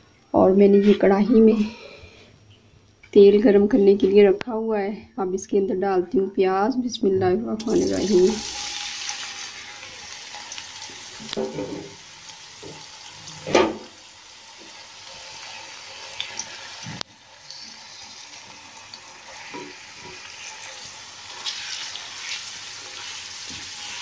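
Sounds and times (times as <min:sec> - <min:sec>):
onions sizzling in hot oil: 0:07.6 - 0:24.0.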